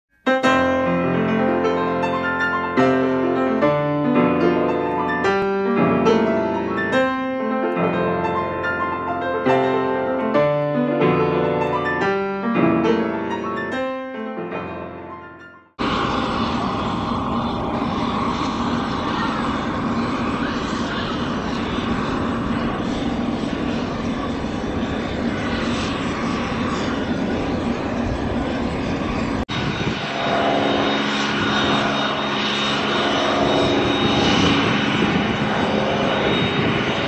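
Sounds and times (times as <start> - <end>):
piano music: 0.2 - 15.9
aircraft engine noise: 0.6 - 37.0.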